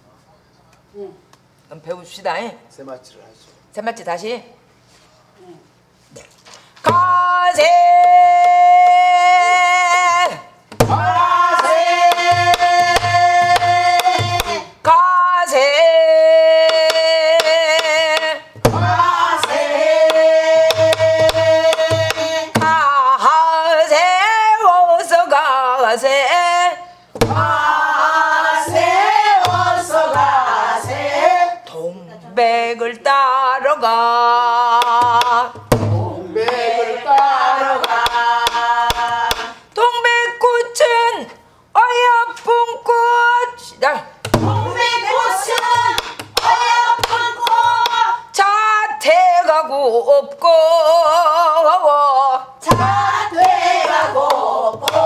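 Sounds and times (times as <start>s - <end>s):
person singing folk song: 6.8s - 31.8s, 32.4s - 40.6s, 44.4s - 55.0s
barrel drum strokes: 27.2s - 31.3s, 35.0s - 36.6s, 52.7s - 55.0s.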